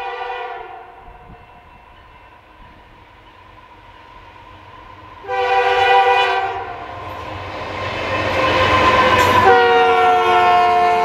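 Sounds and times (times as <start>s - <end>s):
locomotive air horn blasts: 0.0s - 1.5s, 5.2s - 6.8s, 8.2s - 11.0s.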